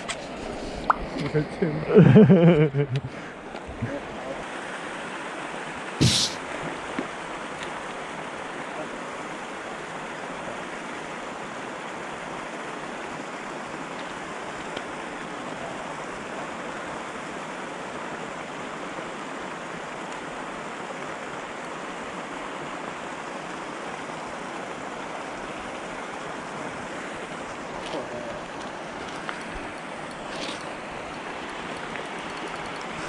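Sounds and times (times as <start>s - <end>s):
fountain water rushing: 0.0s - 33.0s
faint ticks: 31.0s - 33.0s.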